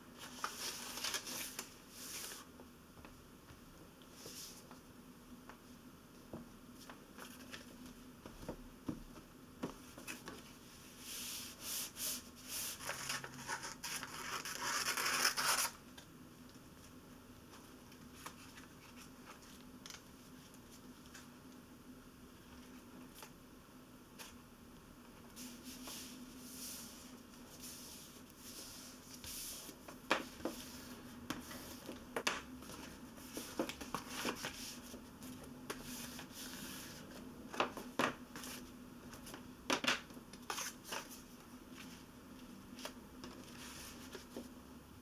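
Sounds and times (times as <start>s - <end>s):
faint steady hum: 0.0s - 45.0s
paper rustling and rubbing: 0.2s - 2.5s, 10.0s - 15.8s
paper crackles and taps: 31.3s - 34.6s, 37.5s - 41.2s.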